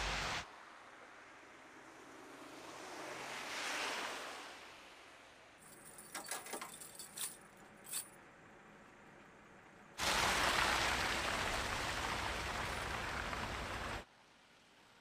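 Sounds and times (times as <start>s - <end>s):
tire chains clinking: 5.6s - 8.4s.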